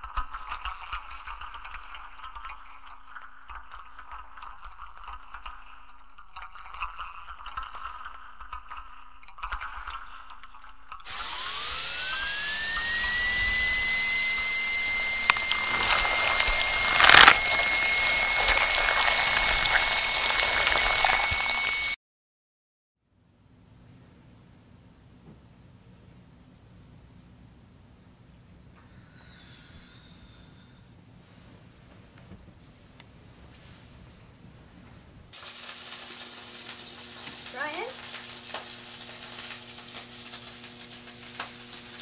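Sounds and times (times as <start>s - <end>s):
power tool motor whining: 11.1s - 22.0s.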